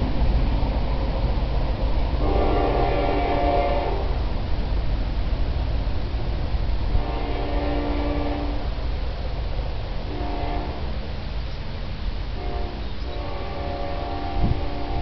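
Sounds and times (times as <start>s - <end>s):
steady low rumble: 0.0s - 15.0s
distant locomotive air horn blasts: 2.2s - 4.2s, 6.9s - 8.7s, 10.1s - 11.0s, 12.3s - 15.0s.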